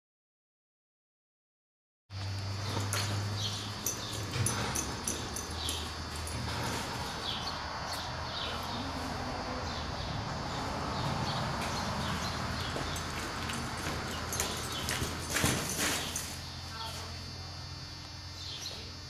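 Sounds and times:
steady low hum: 2.1s - 19.0s
horse hooves in soft dirt: 2.2s - 9.0s, 10.5s - 17.0s.

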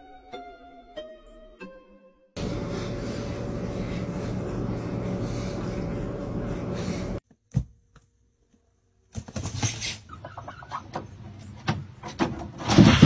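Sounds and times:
steady noise: 2.4s - 7.2s.

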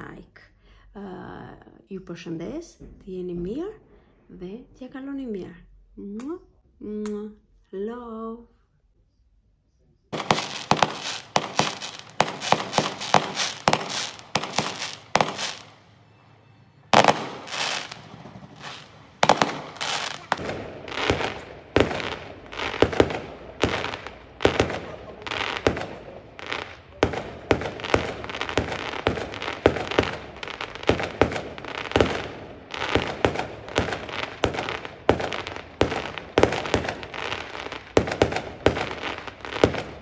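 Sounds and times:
fireworks bangs with crackling: 10.1s - 40.0s.

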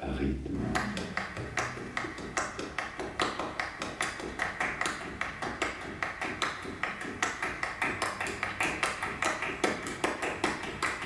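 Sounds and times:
sharp even tapping: 0.5s - 10.8s.

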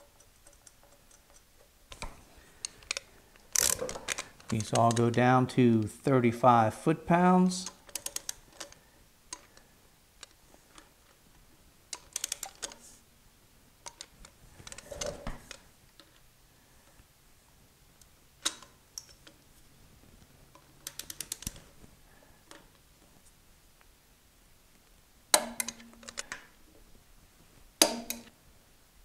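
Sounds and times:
torque wrench clicking: 0.1s - 5.3s, 7.6s - 9.5s, 20.8s - 21.6s.

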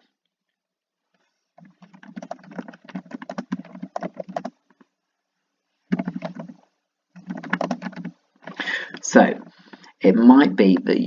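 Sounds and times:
typing on computer keyboard: 1.6s - 4.6s, 5.9s - 6.6s, 7.2s - 8.6s.

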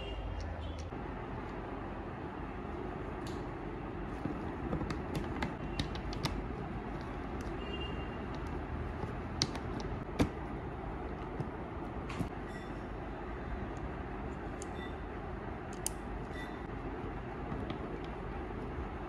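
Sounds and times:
screwdriver clicks and taps: 4.3s - 7.6s, 8.3s - 10.3s, 15.7s - 16.0s.

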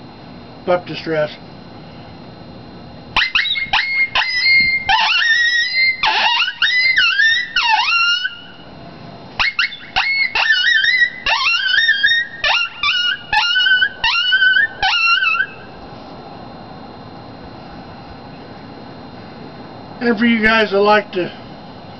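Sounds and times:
horn howler high yelps: 3.2s - 8.6s, 9.4s - 15.7s.

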